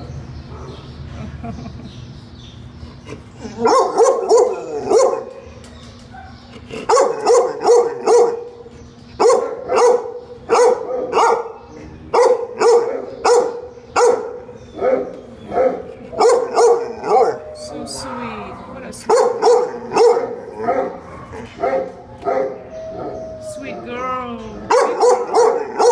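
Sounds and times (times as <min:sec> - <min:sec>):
dog barking: 0:03.6 - 0:05.4, 0:06.1 - 0:08.5, 0:09.2 - 0:17.4, 0:19.1 - 0:22.6, 0:24.7 - 0:25.9.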